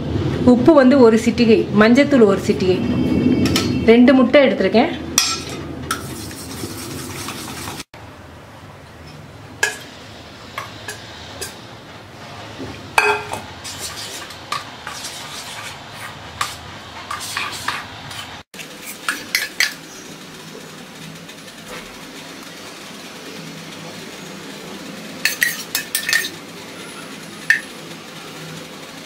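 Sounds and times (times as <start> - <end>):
metal spoon clinking in steel bowl: 25.3 - 26.4.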